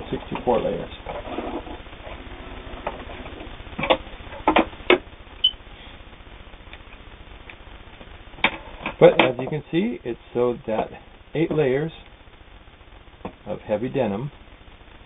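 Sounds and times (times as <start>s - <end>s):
low steady hum: 0.0s - 15.0s
sharp clicks and knocks: 2.8s - 5.6s, 6.7s - 9.6s.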